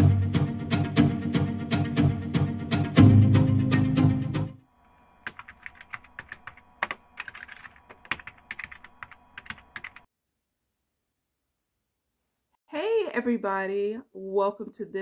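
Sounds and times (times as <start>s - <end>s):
intro music: 0.0s - 4.6s.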